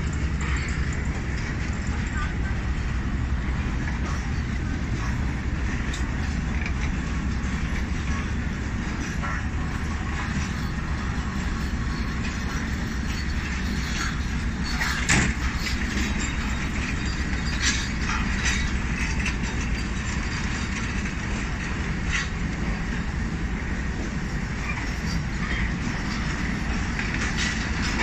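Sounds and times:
train coaches rumbling past: 0:00.0 - 0:28.0.

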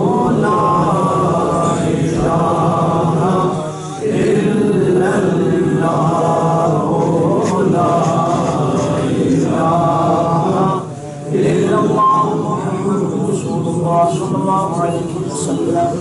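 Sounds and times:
man chanting: 0:00.0 - 0:16.0.

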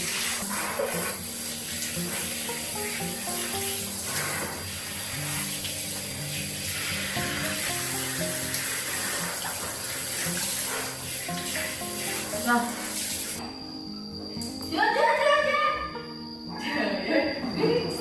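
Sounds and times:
shower head spraying water: 0:00.0 - 0:13.4
background music: 0:01.4 - 0:17.6.

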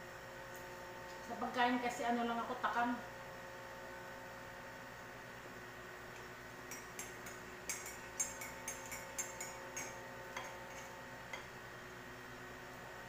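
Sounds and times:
teaspoon clinking in ceramic mug: 0:06.7 - 0:10.9
spoon tapping mug: 0:06.7 - 0:11.5.

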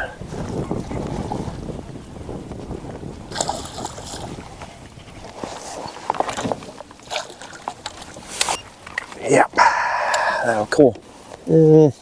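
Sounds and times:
water sloshing around a kayak: 0:00.0 - 0:11.4
wind rumbling on microphone: 0:00.0 - 0:11.5
water splashing: 0:03.1 - 0:10.6.

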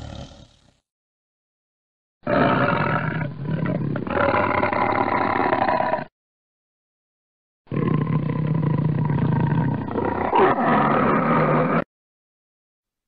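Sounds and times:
tiger roaring: 0:00.0 - 0:00.7, 0:02.2 - 0:06.1, 0:07.7 - 0:11.8.

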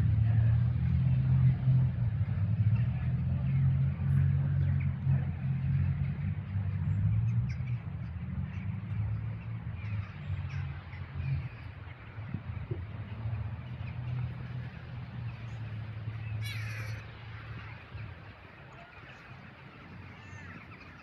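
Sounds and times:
low city rumble: 0:00.0 - 0:21.0.

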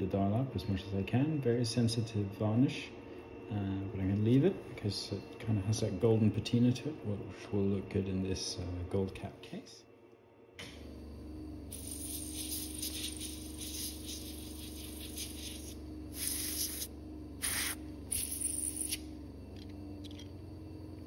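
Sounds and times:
steady low hum: 0:00.0 - 0:21.0
hissing bursts: 0:11.7 - 0:18.4.

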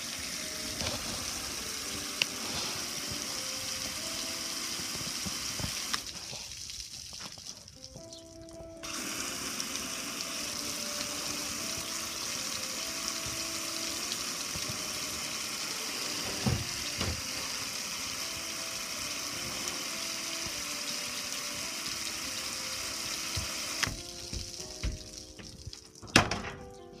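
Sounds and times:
hose sprayer hissing: 0:00.0 - 0:07.2, 0:08.8 - 0:25.6
knocks on metal grill: 0:26.1 - 0:26.6.

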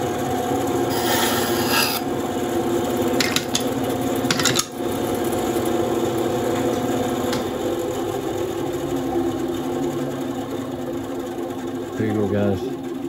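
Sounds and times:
bandsaw motor hum: 0:00.0 - 0:10.2.

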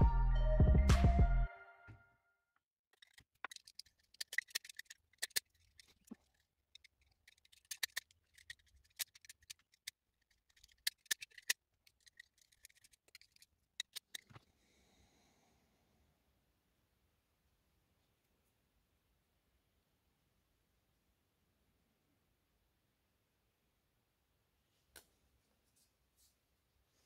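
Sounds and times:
utility knife cutting and scraping: 0:03.0 - 0:14.4.

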